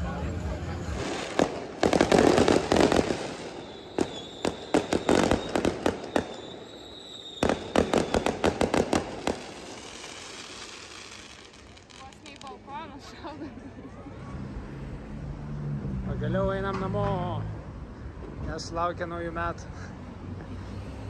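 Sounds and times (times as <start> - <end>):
fireworks bangs and crackles: 0.0 - 12.9
high firework whistle: 3.0 - 8.7.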